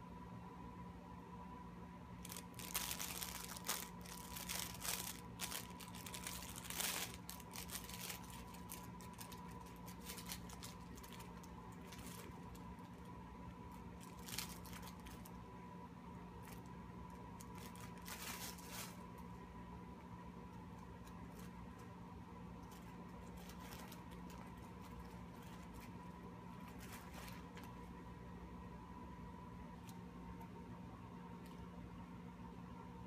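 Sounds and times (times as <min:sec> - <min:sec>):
fabric play mat rustling: 0:02.2 - 0:13.0, 0:17.4 - 0:19.2, 0:22.6 - 0:27.9.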